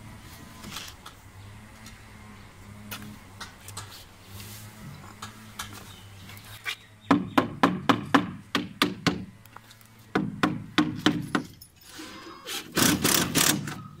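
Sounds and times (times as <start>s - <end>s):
scraping rustle: 2.9s - 6.8s.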